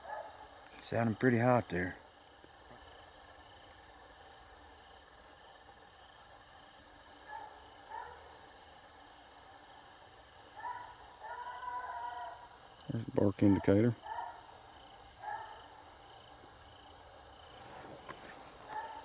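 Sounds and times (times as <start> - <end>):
distant dogs barking: 0.0 - 0.6, 7.1 - 8.5, 10.5 - 16.5, 18.4 - 19.0
insect trill: 0.0 - 19.0
night insects chirping: 0.0 - 19.0.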